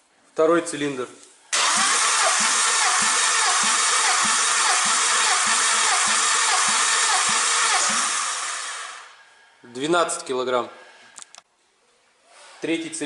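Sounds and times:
starter motor cranking engine: 1.6s - 9.2s.

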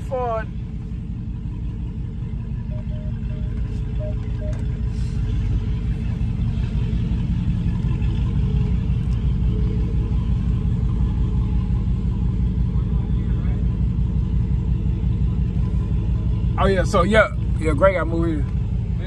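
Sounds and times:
car engine idling: 0.0s - 19.0s
short beeps: 2.6s - 5.1s.

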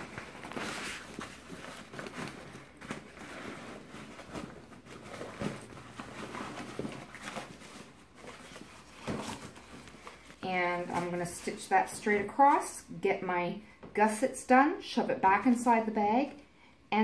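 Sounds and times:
bag rustling and crinkling: 0.0s - 11.7s.

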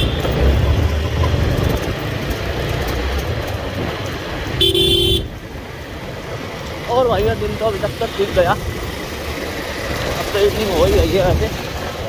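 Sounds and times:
motorcycle engine rumbling: 0.0s - 12.0s
vehicle horn honk: 4.6s - 5.3s.

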